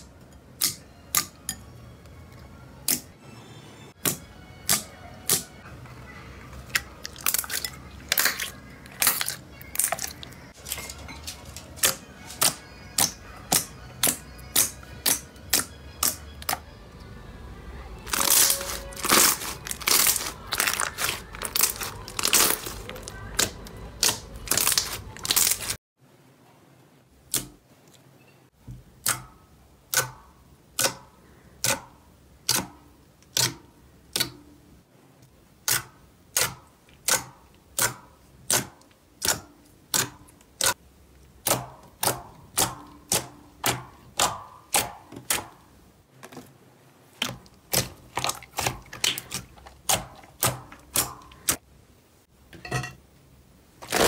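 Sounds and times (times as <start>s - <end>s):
slime crackling: 6.5s - 16.6s, 18.0s - 25.8s, 47.1s - 51.6s, 53.8s - 54.0s.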